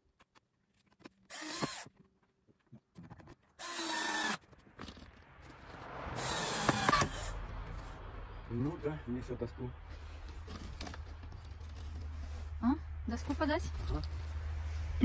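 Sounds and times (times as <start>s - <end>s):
drill driving screws into wood: 1.3s - 1.9s, 3.6s - 4.4s, 6.2s - 7.3s.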